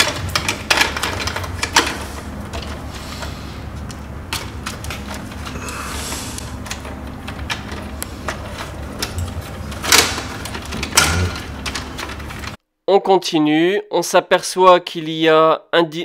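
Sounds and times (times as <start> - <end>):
clicks and rattles of wires: 0.0 - 12.6
steady low hum: 0.0 - 12.6.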